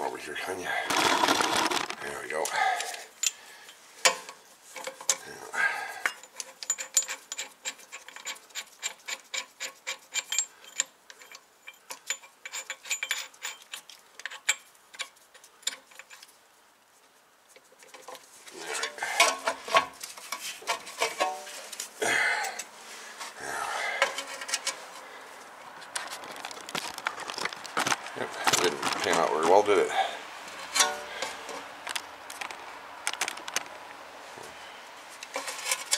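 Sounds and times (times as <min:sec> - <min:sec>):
metal clattering: 0:00.9 - 0:02.0
metallic clicking and scraping: 0:00.9 - 0:05.3, 0:06.0 - 0:16.4, 0:17.5 - 0:21.9, 0:23.9 - 0:25.1, 0:30.5 - 0:33.8, 0:35.2 - 0:35.9.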